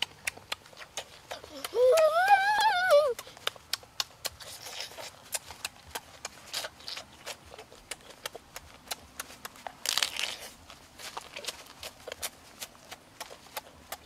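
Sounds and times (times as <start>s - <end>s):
chewing and lip smacking: 0.0s - 14.0s
crab shell crunch: 3.1s - 14.0s.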